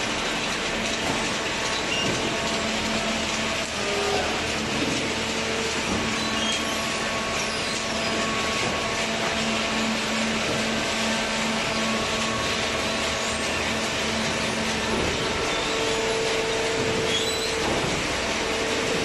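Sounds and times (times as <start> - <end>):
baler machine drone: 0.0 - 19.0
machine whine tones: 0.8 - 19.0.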